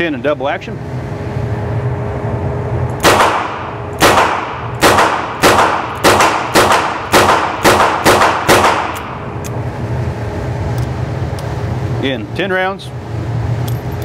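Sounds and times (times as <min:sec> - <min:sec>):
revolver shots indoors: 0:01.2 - 0:11.6.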